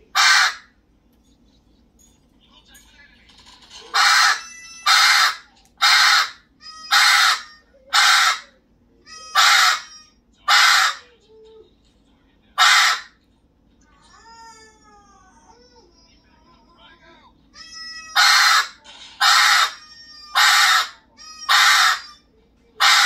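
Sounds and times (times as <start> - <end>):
parrot squawking: 0.0 - 0.8, 3.8 - 11.2, 12.6 - 13.2, 17.5 - 23.0.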